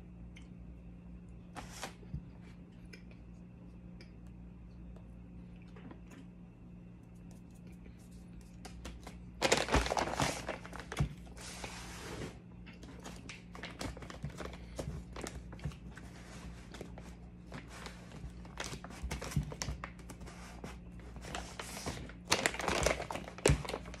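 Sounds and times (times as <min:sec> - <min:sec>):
steady low hum: 0:00.0 - 0:24.0
plastic snack bag crinkling: 0:08.1 - 0:11.5, 0:12.8 - 0:24.0.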